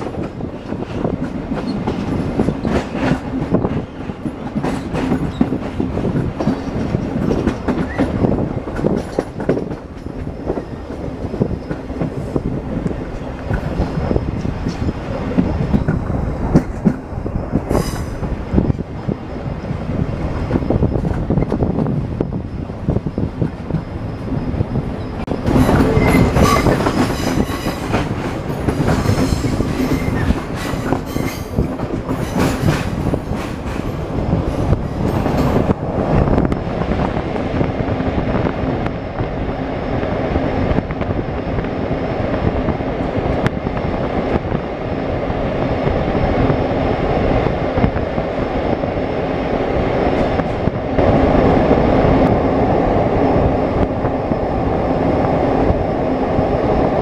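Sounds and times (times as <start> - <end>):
train rumbling on rails: 0.0 - 57.0
wheel squeals: 23.8 - 27.9.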